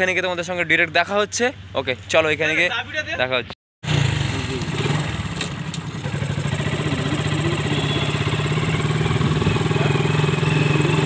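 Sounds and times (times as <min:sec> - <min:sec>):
motorcycle engine running: 0:03.8 - 0:11.0.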